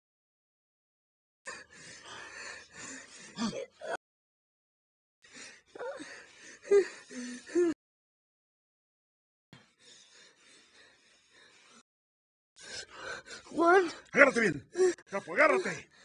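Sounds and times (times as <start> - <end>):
person gasping and breathing: 5.3 - 7.8, 14.8 - 16.0.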